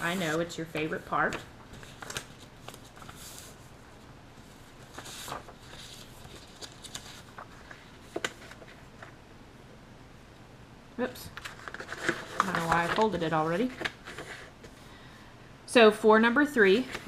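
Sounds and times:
paper rustling: 0.0 - 9.2, 11.3 - 14.8.

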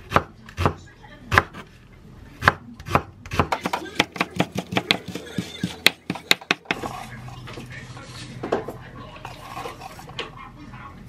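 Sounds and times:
knife chopping on wooden board: 2.4 - 6.8.

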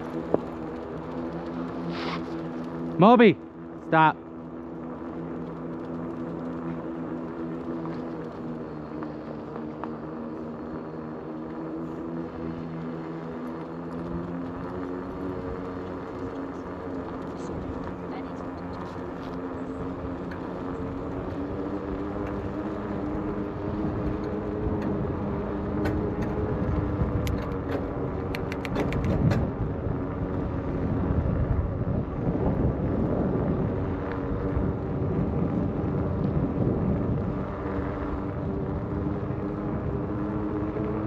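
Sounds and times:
electric bike motor hum: 0.0 - 41.0
wind rumbling on microphone: 11.9 - 41.0
quick sharp clicks: 28.3 - 29.3.

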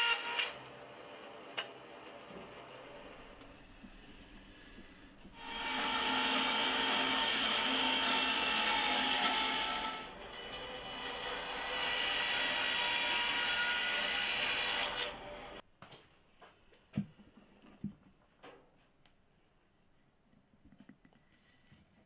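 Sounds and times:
bandsaw cutting wood: 5.3 - 15.6.

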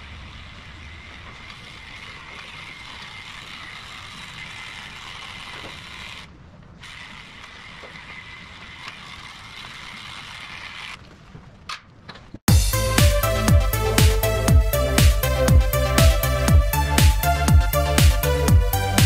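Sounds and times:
electric clipper running: 0.0 - 6.3.

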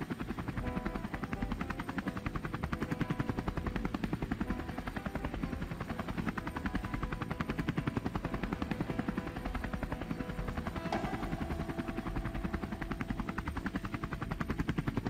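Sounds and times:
drone propellers buzzing: 0.0 - 15.0.

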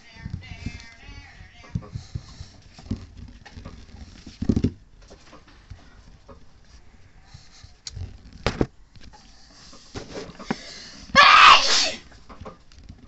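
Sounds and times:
baseball rubbing and tapping: 0.1 - 6.8.

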